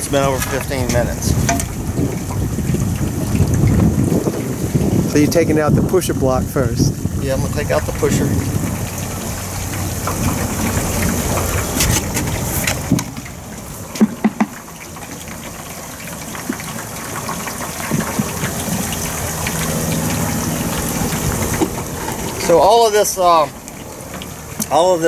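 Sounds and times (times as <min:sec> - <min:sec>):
sharp knocks: 0:14.0 - 0:14.6.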